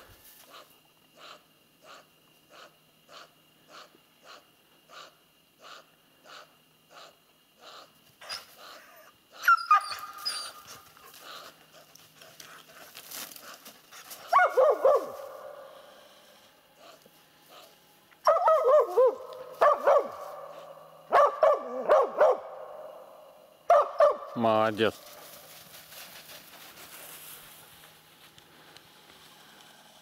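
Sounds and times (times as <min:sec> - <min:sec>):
dog whining: 0:08.2 - 0:10.8.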